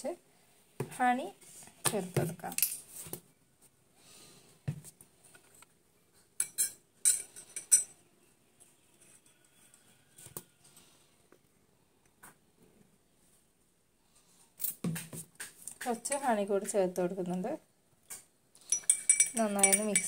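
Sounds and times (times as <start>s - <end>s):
spoon clinking against glass: 6.4s - 8.0s, 18.6s - 20.0s.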